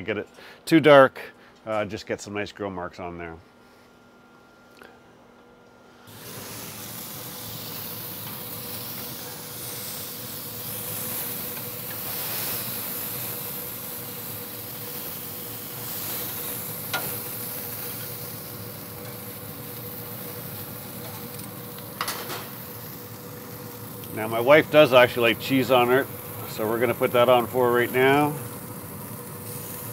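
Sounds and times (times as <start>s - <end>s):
burger patties sizzling on grill: 6.0s - 29.9s.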